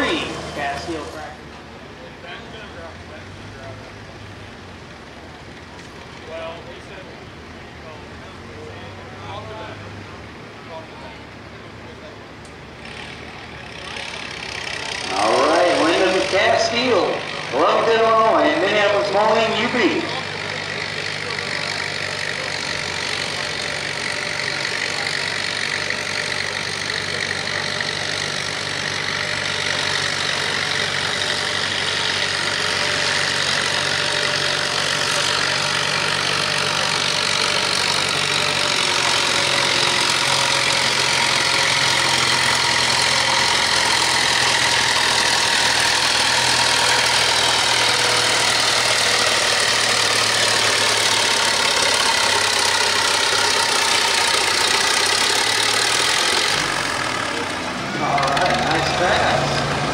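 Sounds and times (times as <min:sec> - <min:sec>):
tractor engine under heavy load: 0:00.0 - 0:59.9.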